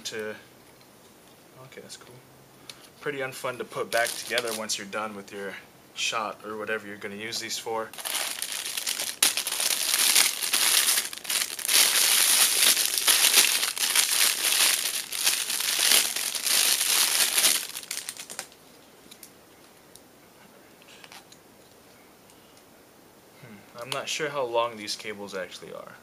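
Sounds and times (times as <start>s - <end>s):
plastic bag crinkling: 3.8s - 4.8s, 7.9s - 19.3s.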